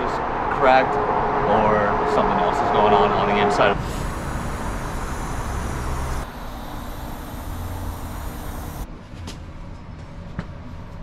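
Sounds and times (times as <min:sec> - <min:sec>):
gas hissing from hose: 0:03.6 - 0:08.9.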